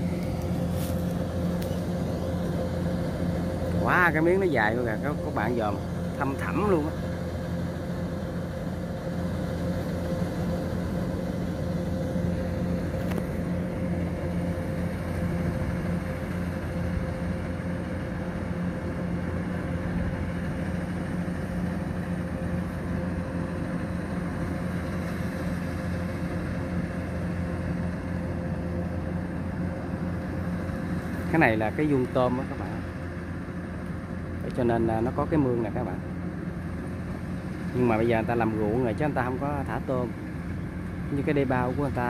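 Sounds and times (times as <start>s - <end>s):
combine harvester diesel engine: 0.0s - 42.0s.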